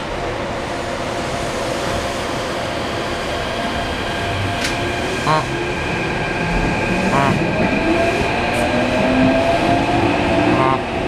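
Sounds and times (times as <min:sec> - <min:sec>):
train rolling noise: 0:00.0 - 0:11.0.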